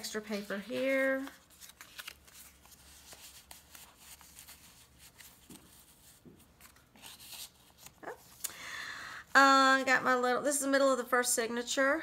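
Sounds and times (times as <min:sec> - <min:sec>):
paper and card rustling: 0:00.0 - 0:08.4.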